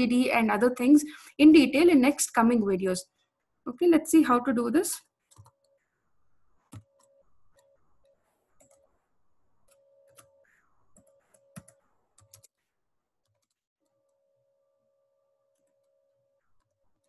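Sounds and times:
keyboard typing: 5.2s - 6.0s, 6.6s - 9.0s, 9.6s - 12.6s, 13.2s - 13.6s.

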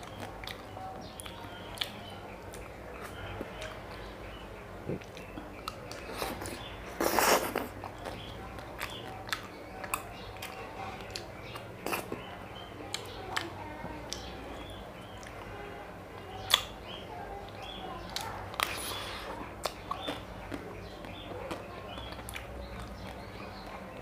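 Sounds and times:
mouth clicks and lip smacks: 4.8s - 12.2s
biting and slurping: 4.9s - 8.2s, 18.6s - 20.2s.

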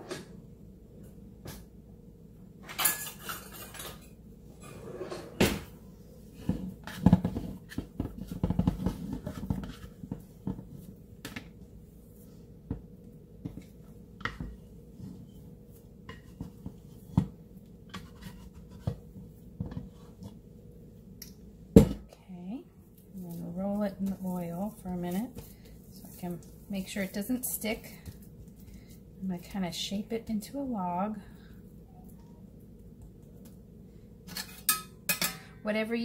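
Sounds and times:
utensils clattering in a drawer: 2.7s - 5.4s
dough scraping in a ceramic bowl: 6.2s - 11.0s, 13.4s - 20.4s, 23.0s - 28.7s.

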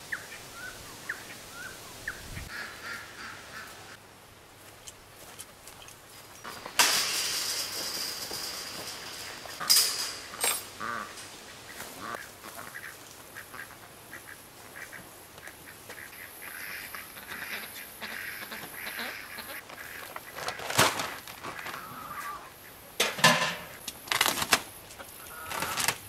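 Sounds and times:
ducks quacking: 0.1s - 4.0s, 9.4s - 22.9s, 25.0s - 25.9s.

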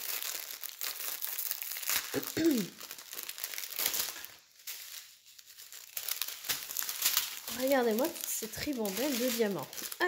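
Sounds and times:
plastic packaging crinkling: 0.0s - 10.0s
person humming: 2.2s - 2.7s.

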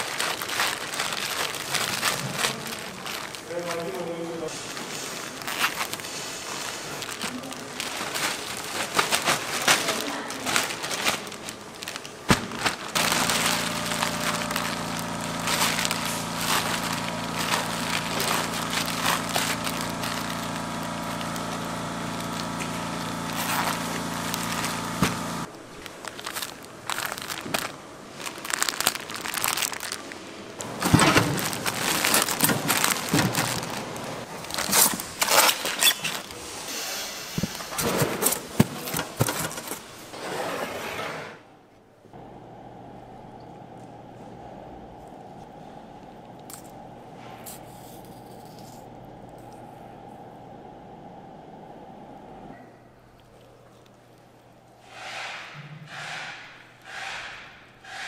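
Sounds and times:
plastic bag crinkling: 0.0s - 36.5s, 43.6s - 52.5s
steady mechanical hum: 0.0s - 58.0s.

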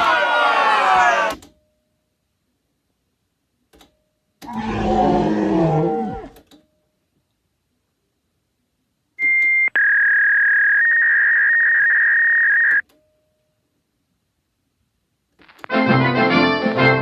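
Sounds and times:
electronic beeps: 9.2s - 12.8s.

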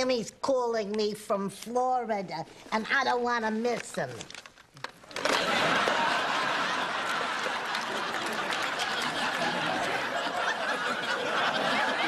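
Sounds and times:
audience applauding: 5.2s - 12.0s
audience laughing: 5.2s - 12.0s.

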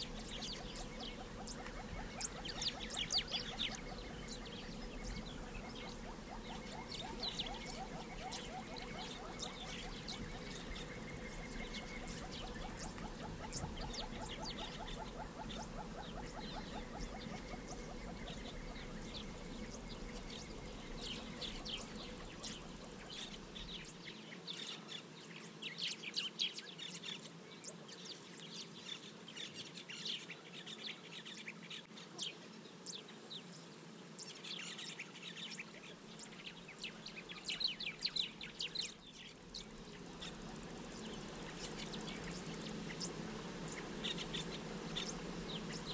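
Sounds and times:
steady low hum: 0.0s - 23.9s, 38.0s - 45.9s
birds chirping and calling: 0.0s - 27.8s, 34.2s - 45.9s.

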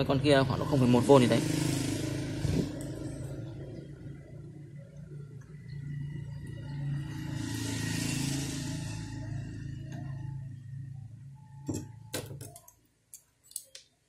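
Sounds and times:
low hum: 1.6s - 12.1s.

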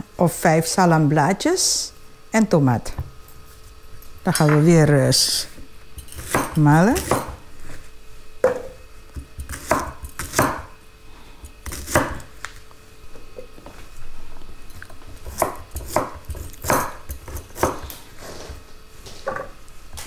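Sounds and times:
knife chopping on wooden board: 6.2s - 7.4s, 8.4s - 10.7s, 11.6s - 12.3s, 15.2s - 17.9s.

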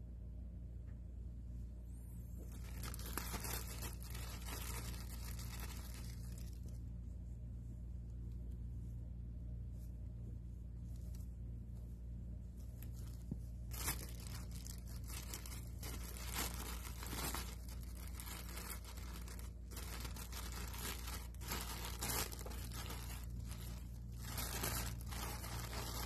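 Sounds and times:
steady low hum: 0.0s - 26.0s
thin plastic crinkling: 2.2s - 6.9s, 12.4s - 26.0s.

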